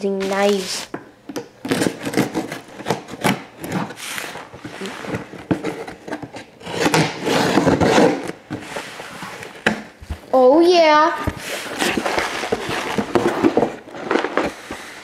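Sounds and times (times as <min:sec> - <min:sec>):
knife scraping through cardboard: 0:01.6 - 0:09.5, 0:11.3 - 0:15.0.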